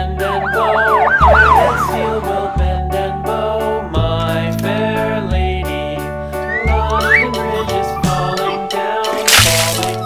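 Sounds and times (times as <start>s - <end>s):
background music with held tones: 0.0s - 10.0s
rising whistle-like glide: 0.2s - 2.6s.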